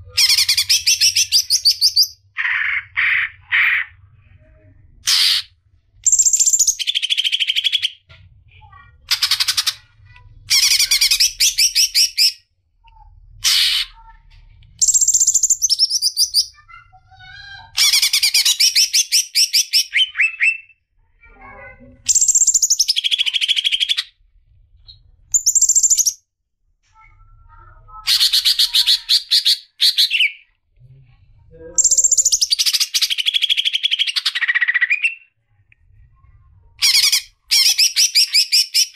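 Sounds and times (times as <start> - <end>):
songbird chattering song: 14.8 - 16.7, 25.4 - 26.2, 31.8 - 35.2.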